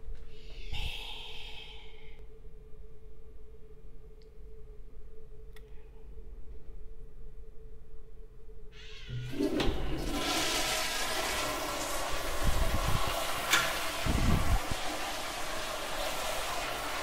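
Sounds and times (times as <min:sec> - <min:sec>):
toilet flushing: 0:08.8 - 0:17.0.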